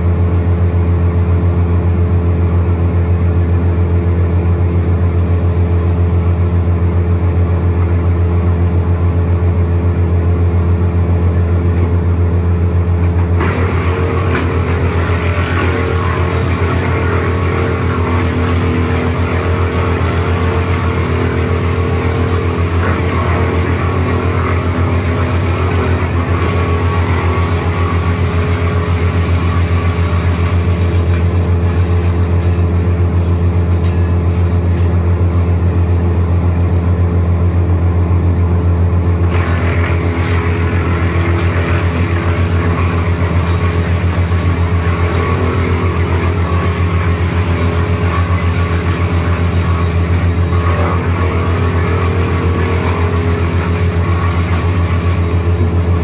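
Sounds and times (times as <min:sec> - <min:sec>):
wood chipper engine hum: 0:00.0 - 0:56.0
rough high-pitched chipping noise: 0:13.4 - 0:36.2, 0:39.0 - 0:56.0.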